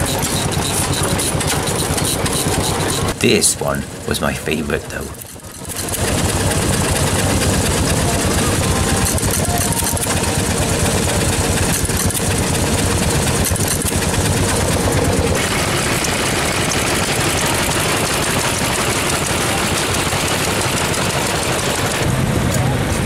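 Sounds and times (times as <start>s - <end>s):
stationary engines chugging: 0.0s - 23.0s.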